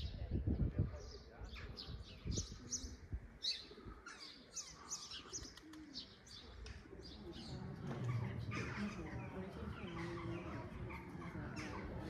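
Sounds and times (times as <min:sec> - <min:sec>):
small birds chirping: 0:00.0 - 0:12.0
low murmur: 0:04.8 - 0:12.0.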